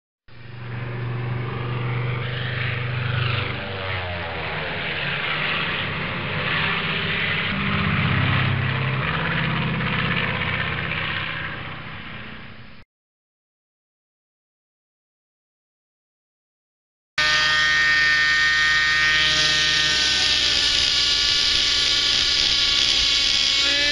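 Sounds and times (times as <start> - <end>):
aircraft engine droning: 0.3 - 12.8.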